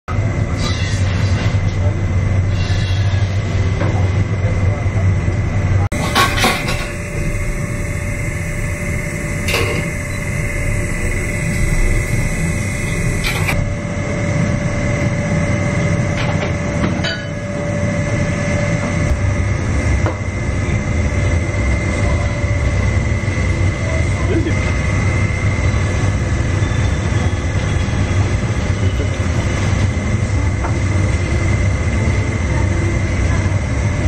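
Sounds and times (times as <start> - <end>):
kitchen equipment rumble: 0.4 - 19.1
faint hum tone: 4.7 - 29.5.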